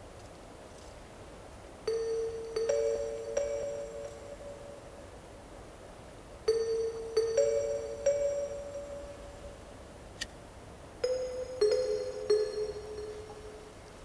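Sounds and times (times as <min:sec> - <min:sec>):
soft chime-like tones: 0:01.9 - 0:05.2, 0:06.5 - 0:09.8, 0:11.0 - 0:14.0.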